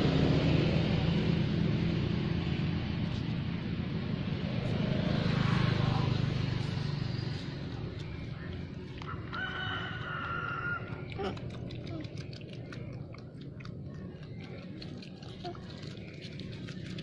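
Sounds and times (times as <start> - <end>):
rooster crowing: 9.1 - 10.9.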